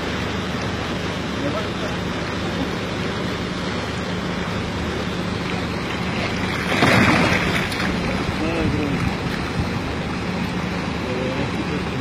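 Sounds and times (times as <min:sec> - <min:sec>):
water noise: 0:00.0 - 0:12.0
wind: 0:00.0 - 0:12.0
fish thrashing and splashing: 0:04.8 - 0:10.4.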